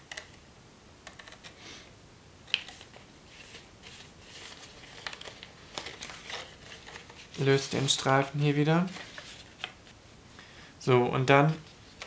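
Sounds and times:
paper rustling and crackling: 2.5s - 10.0s.

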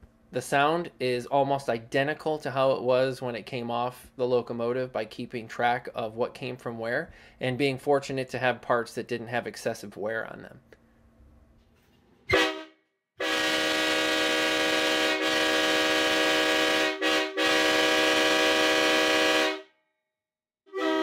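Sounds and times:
train horn chord: 12.3s - 19.7s, 20.7s - 21.0s.

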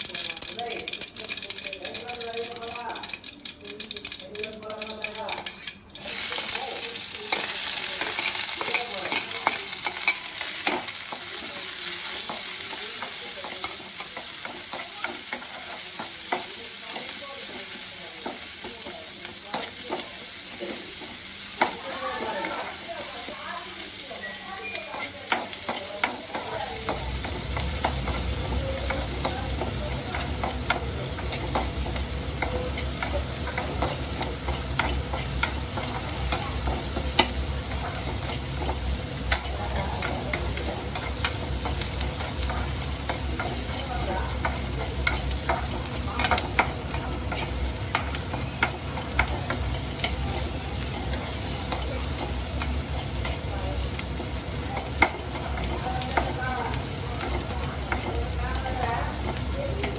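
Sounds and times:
noodles sizzling in a pan: 0.0s - 59.9s.

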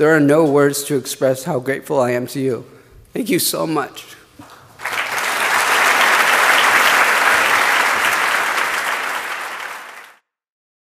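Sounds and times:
audience applauding: 4.4s - 10.2s.

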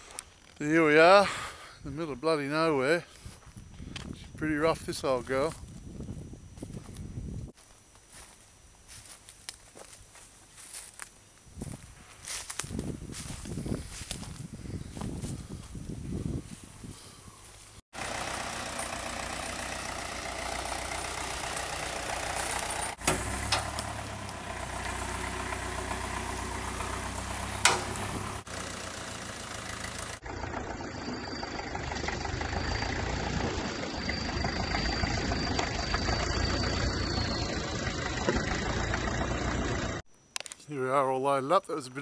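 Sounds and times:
vehicle engine idling: 18.0s - 40.0s
faint high whine: 30.3s - 39.0s.

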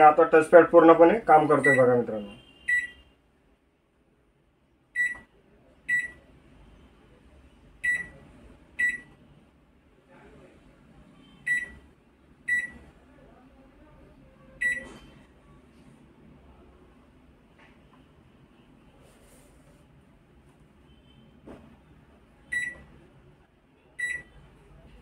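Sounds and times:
microwave keypad beeps: 1.6s - 2.0s, 2.7s - 3.0s, 5.0s - 5.3s, 5.9s - 6.2s, 7.8s - 8.2s, 8.8s - 9.1s, 11.4s - 11.8s, 12.5s - 12.8s, 14.6s - 14.9s, 22.5s - 22.9s, 24.0s - 24.4s.

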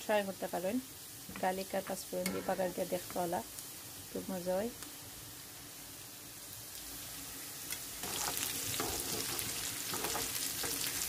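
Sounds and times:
oil sizzling in frying pan: 0.0s - 11.0s
potatoes crackling in oil: 0.0s - 11.0s
spoon stirring: 8.0s - 11.0s.

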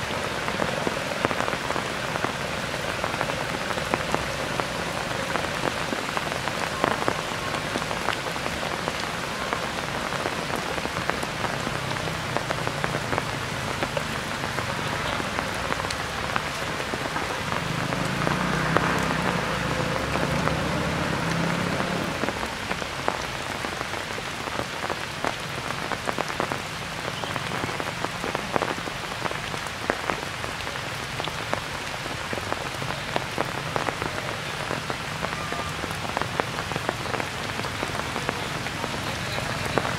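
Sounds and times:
rain on foliage: 0.0s - 39.9s.

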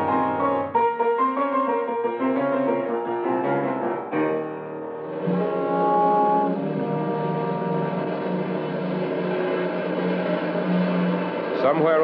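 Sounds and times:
radio drama music held chords: 3.0s - 12.0s.

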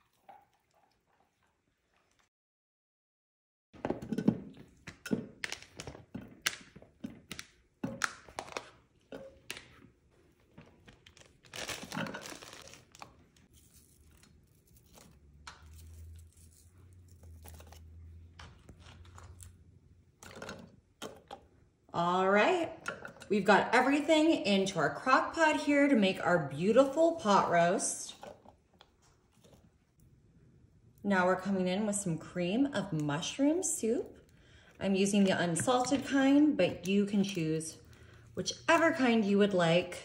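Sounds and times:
plastic bag crinkling: 10.5s - 17.9s.

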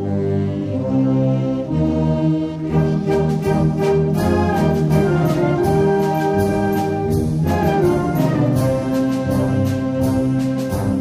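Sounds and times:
orchestral music led by brass: 0.0s - 11.0s.

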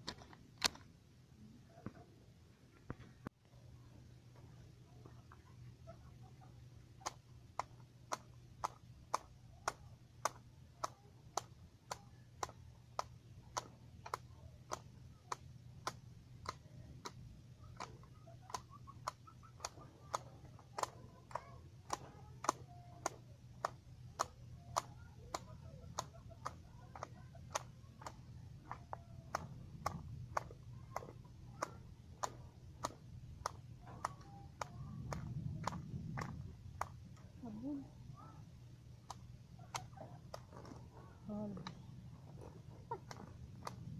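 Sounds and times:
grass shears snipping: 7.0s - 37.0s.

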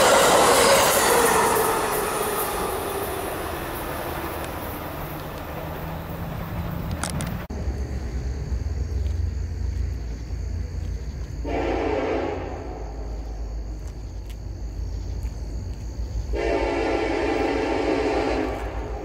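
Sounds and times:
diesel locomotive rumble: 0.0s - 19.0s
locomotive horn blasts: 11.4s - 12.8s, 16.3s - 19.0s.

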